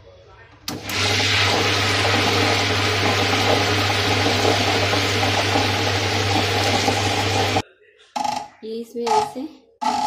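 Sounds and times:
stone rollers churning batter: 0.7s - 7.6s.

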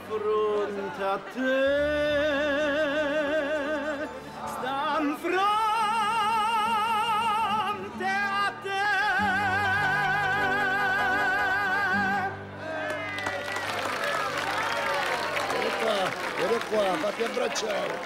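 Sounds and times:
tenor singing operatically: 0.0s - 13.1s.

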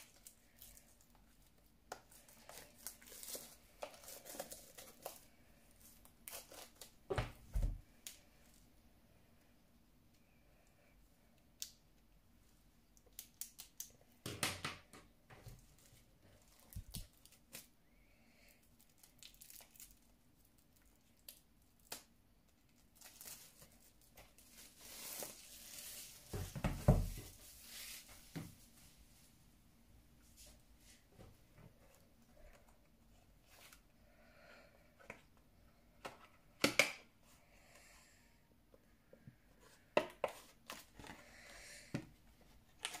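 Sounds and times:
plastic packaging crinkling: 0.0s - 7.0s, 18.8s - 28.1s.

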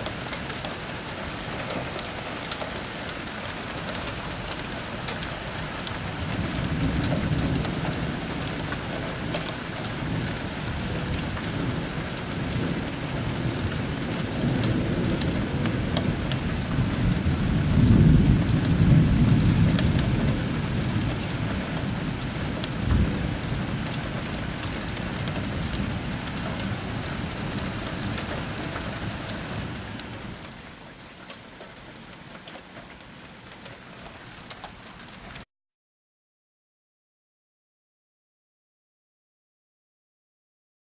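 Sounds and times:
heavy rain: 0.0s - 35.5s
rolling thunder: 5.7s - 30.4s.

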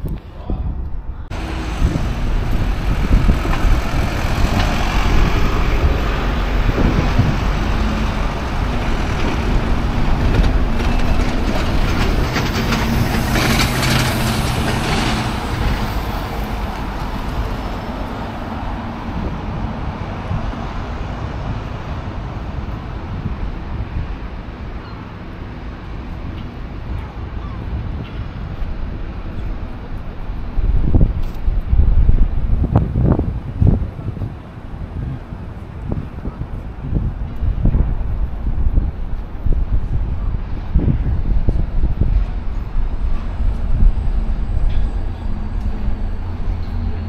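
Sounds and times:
large vehicle engine running: 1.3s - 18.1s.

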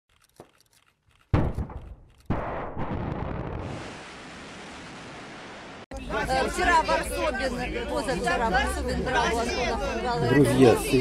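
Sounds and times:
rocket blast: 1.4s - 5.8s
rocket rushing roar: 2.5s - 5.8s.

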